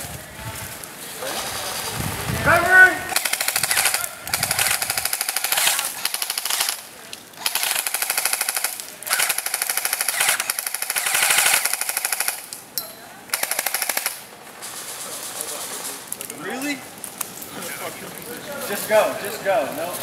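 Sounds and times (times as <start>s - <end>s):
airsoft rifles firing bursts: 3.1s - 12.5s, 13.3s - 16.1s.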